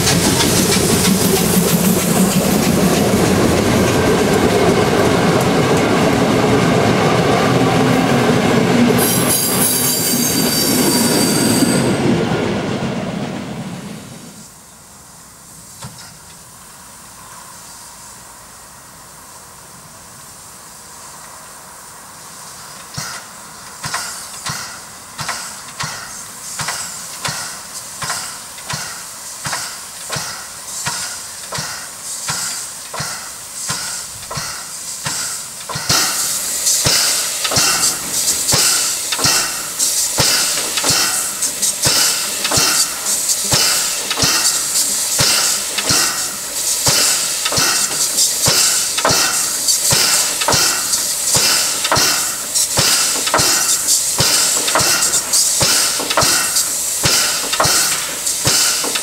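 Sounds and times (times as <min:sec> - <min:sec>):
steam air pump beats: 0:00.0 - 0:06.2, 0:22.4 - 0:59.0
steam hissing: 0:00.0 - 0:08.0, 0:13.6 - 0:59.0.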